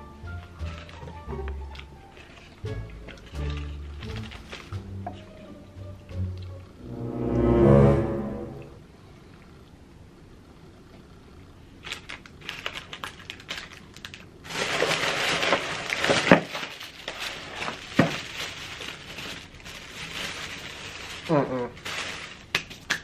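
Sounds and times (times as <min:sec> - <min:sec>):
plastic wrapping crinkling: 0:00.5 - 0:04.8, 0:11.8 - 0:23.0.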